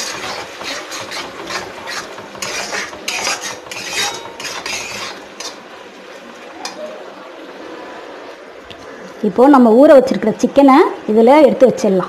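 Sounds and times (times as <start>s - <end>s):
metal spatula scraping a pan: 0.0s - 5.7s.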